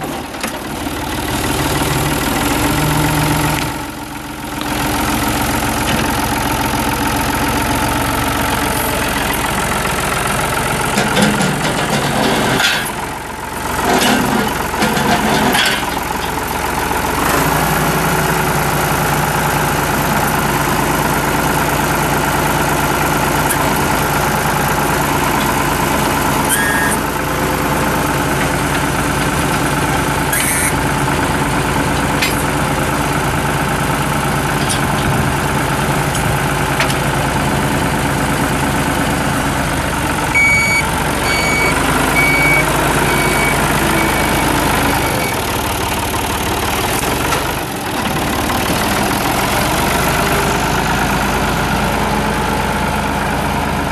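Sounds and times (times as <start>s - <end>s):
tractor diesel engine running: 0.0s - 53.9s
high beeps: 40.4s - 44.4s.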